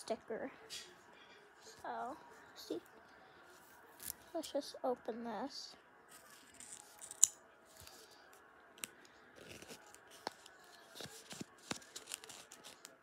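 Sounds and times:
paper crinkling: 6.1s - 8.1s, 8.8s - 13.0s
scissors snipping paper: 6.3s - 8.0s, 8.8s - 13.0s.

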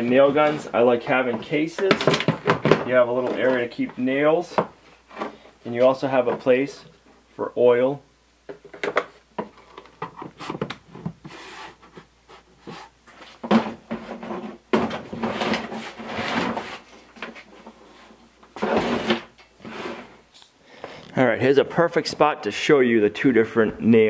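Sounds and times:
cases scraping on shelf: 9.5s - 20.3s.

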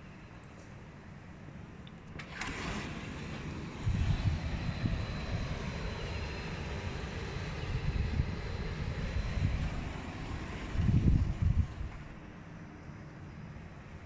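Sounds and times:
wind buffeting microphone: 2.2s - 12.8s.

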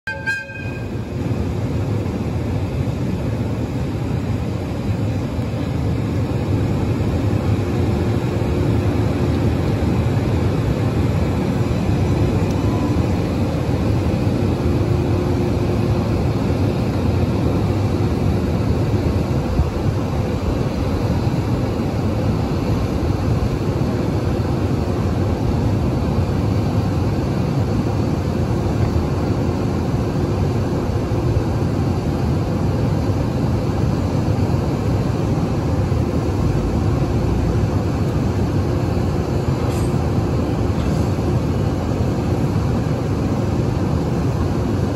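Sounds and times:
faint steady tone: 0.1s - 1.1s, 12.2s - 13.4s
electric locomotive humming: 0.1s - 44.9s.

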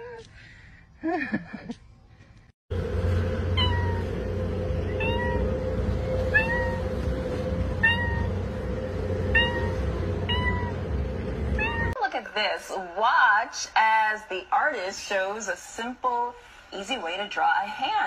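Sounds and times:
steady low hum: 0.0s - 14.0s
high meow-like calls: 4.8s - 7.0s.

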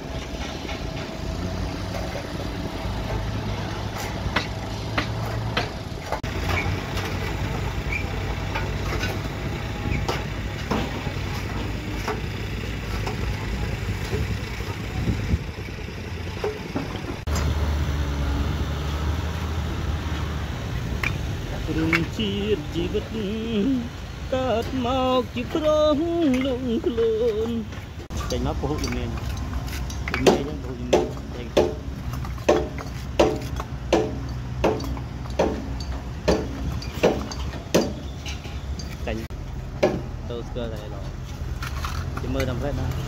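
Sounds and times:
tools knocking and scraping: 0.0s - 15.7s, 16.3s - 17.5s, 25.5s - 40.2s
low engine hum: 0.0s - 43.0s.

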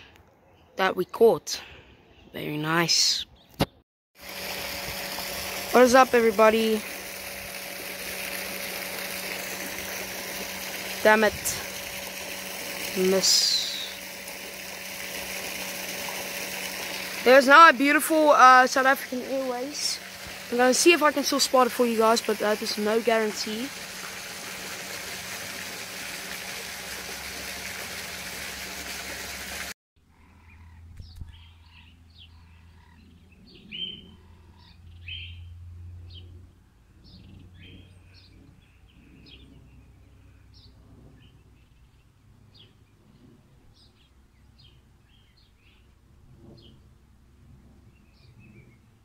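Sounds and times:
small birds chirping: 30.2s - 35.5s.

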